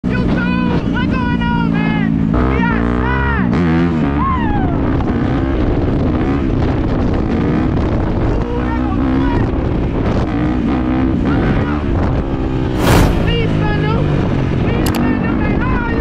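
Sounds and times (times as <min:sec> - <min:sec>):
wind rushing over microphone: 0:11.4 - 0:16.0.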